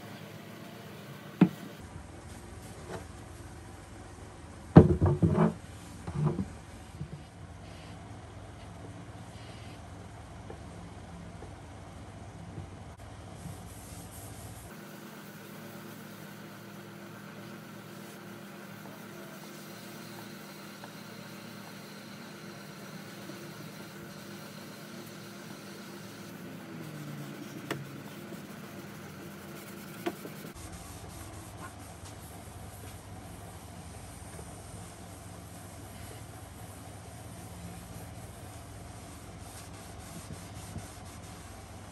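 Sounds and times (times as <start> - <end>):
steady background hum: 0.0 - 41.9
hand rubbing wooden table: 17.4 - 41.7.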